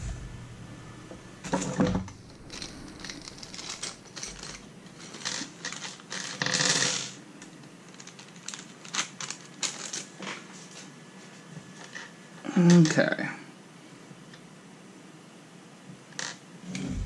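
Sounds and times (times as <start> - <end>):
plastic bag crinkling: 2.1 - 6.4, 7.8 - 10.8
plastic and metal clicks and rattles: 7.4 - 10.1.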